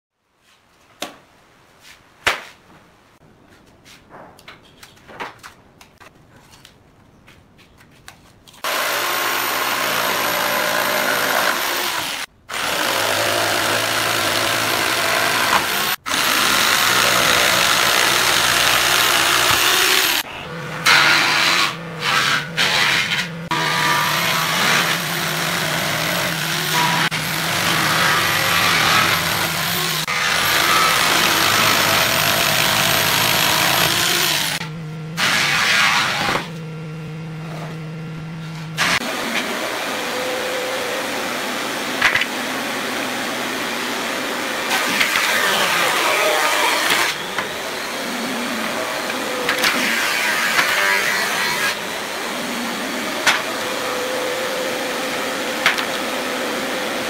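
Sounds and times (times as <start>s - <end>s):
electric jigsaw cutting wood: 8.6s - 36.6s, 38.8s - 57.0s.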